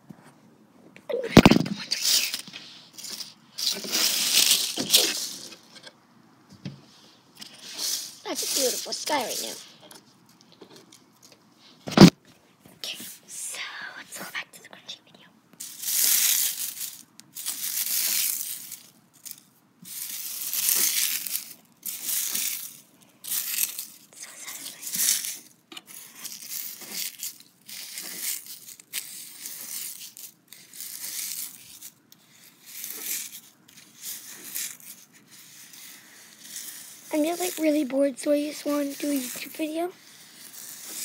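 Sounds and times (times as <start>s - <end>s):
dry leaves crunched by hand: 3.1s - 5.5s, 15.6s - 23.9s.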